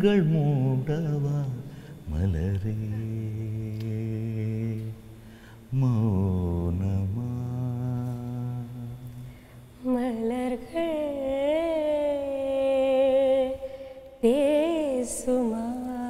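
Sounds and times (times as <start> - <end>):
man singing low note: 5.7 - 9.1.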